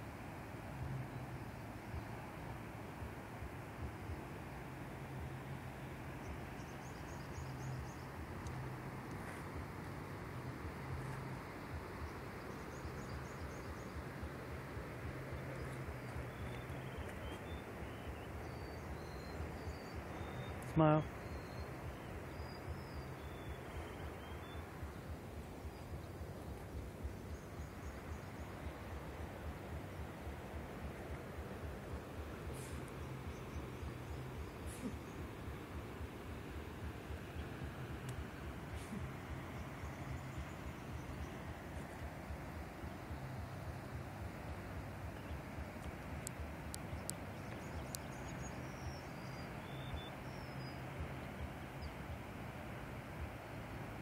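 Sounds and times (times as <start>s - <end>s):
distant waterfall rushing: 0.0s - 54.0s
low rumble on microphone: 3.8s - 54.0s
faint high bird chirps: 15.3s - 25.0s, 46.2s - 52.0s
thin ticks: 45.8s - 48.1s.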